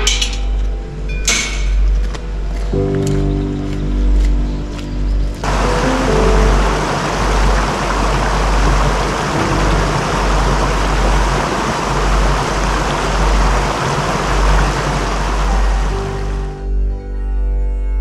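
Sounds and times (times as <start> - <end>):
wind buffeting microphone: 5.3 - 16.6.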